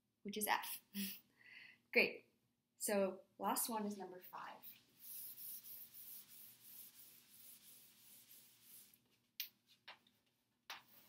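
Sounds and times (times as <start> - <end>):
eraser rubbing on blackboard: 4.6 - 9.1.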